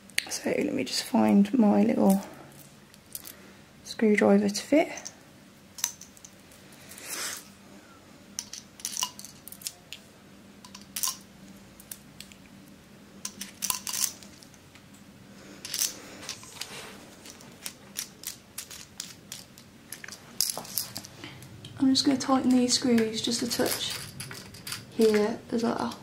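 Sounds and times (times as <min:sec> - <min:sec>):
screwdriver bits clinking: 0:08.4 - 0:09.8, 0:10.7 - 0:11.2, 0:13.2 - 0:14.4, 0:15.7 - 0:21.1, 0:23.4 - 0:25.3.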